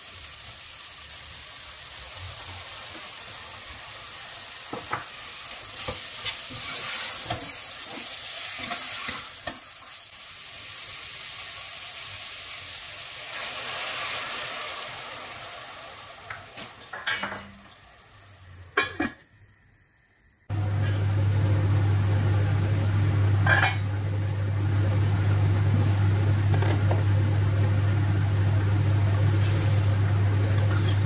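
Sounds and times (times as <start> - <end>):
vegetables sizzling in pot: 0.0 - 31.0
water poured into hot pot: 9.0 - 17.8
pot lid clinking: 18.8 - 19.2, 23.4 - 23.8
metal spoon scraping pot: 30.6 - 31.0.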